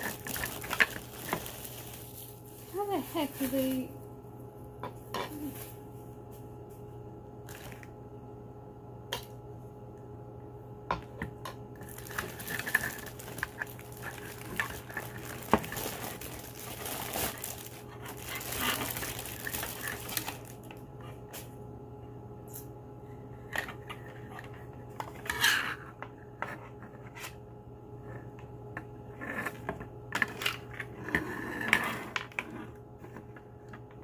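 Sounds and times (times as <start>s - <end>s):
plastic packaging crinkling: 0.0s - 4.0s, 11.8s - 20.8s
steady low hum: 0.0s - 34.0s.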